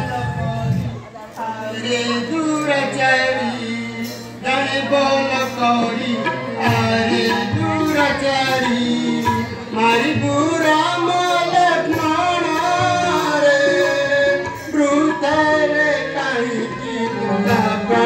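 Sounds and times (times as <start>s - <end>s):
drum and instrumental accompaniment: 0.0s - 18.0s
person singing: 0.0s - 18.0s.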